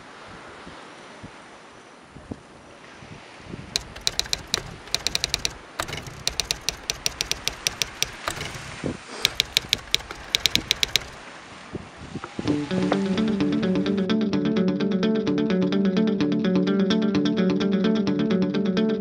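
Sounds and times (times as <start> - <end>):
typewriter keys clicking: 3.8 - 11.2.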